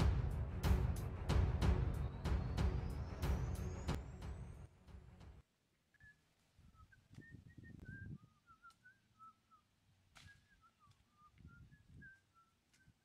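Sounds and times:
bird whistling: 0:02.0 - 0:04.0, 0:05.9 - 0:13.0.

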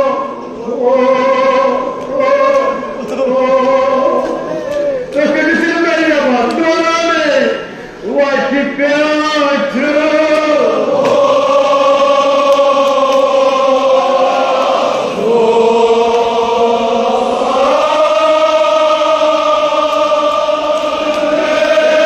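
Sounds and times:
men chanting in unison: 0:09.2 - 0:22.0.

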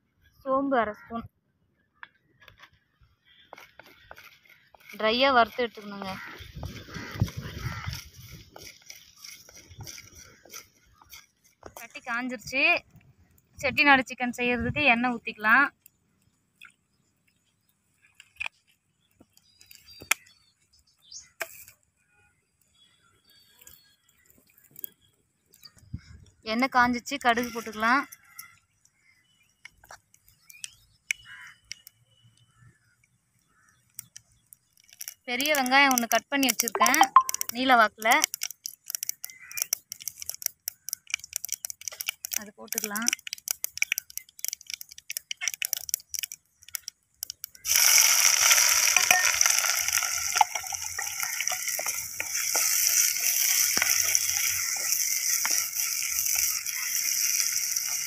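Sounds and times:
mustard seeds popping in oil: 0:33.4 - 0:58.0
onions sizzling in oil: 0:47.6 - 0:58.0
wooden spatula scraping a pot: 0:47.7 - 0:58.0.

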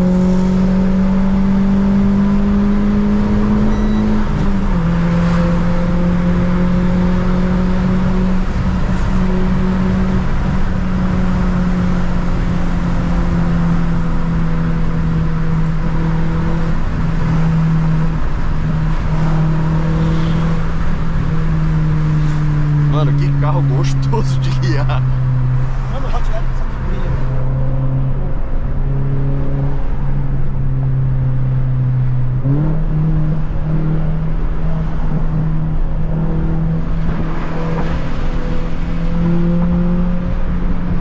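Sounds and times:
car engine droning in cabin: 0:00.0 - 0:41.0
road and tyre noise: 0:00.0 - 0:41.0.

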